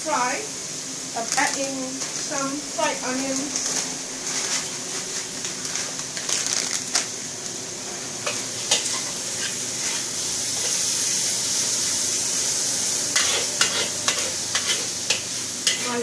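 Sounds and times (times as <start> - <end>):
food sizzling in a wok: 0.0 - 16.0
spatula scraping and clacking wok: 8.2 - 11.2, 13.1 - 16.0.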